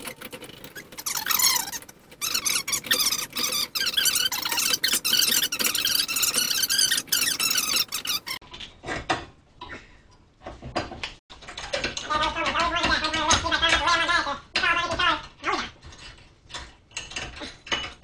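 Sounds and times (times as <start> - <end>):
clamp screw squeaking: 0.0 - 8.4.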